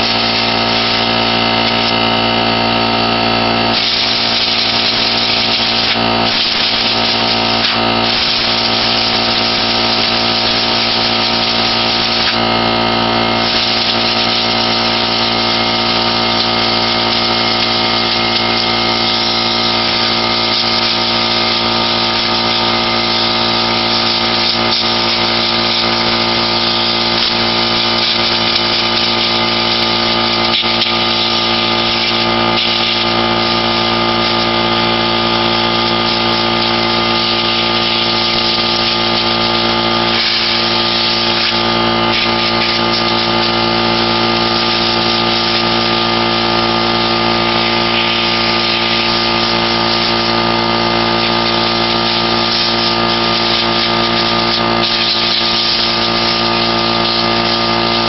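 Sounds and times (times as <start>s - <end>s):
air compressor running: 0.0s - 58.0s
compressed air hissing from nozzle: 0.0s - 58.0s.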